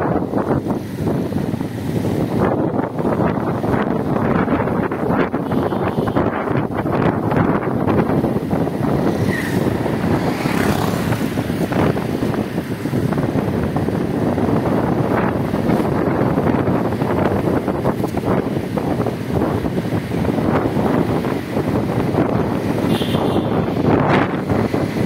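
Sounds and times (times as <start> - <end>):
motorcycle engine and road rumble: 0.0 - 25.0
wind buffeting microphone: 0.0 - 25.0.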